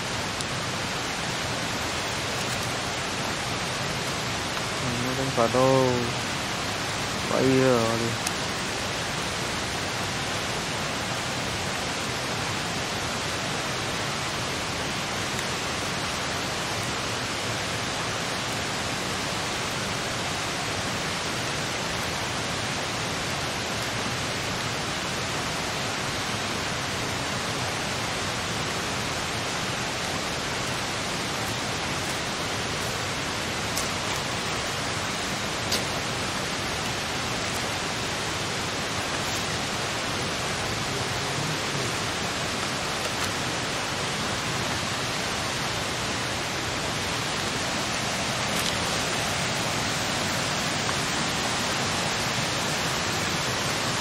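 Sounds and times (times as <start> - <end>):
steady rushing noise: 25.9 - 54.0.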